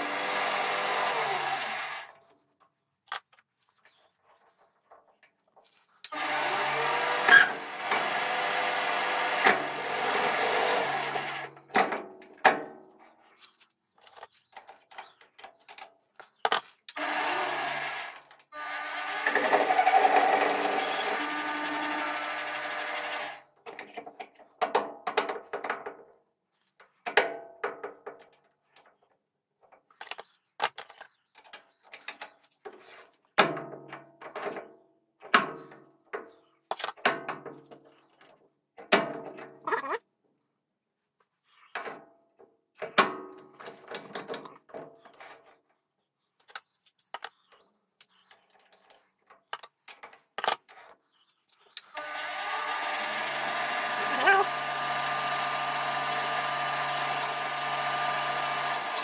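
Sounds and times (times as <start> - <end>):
metal lathe drilling brass: 6.1 - 11.4, 17.0 - 23.4, 52.0 - 59.0
metal parts clicking and knocking: 57.0 - 57.4, 58.6 - 59.0.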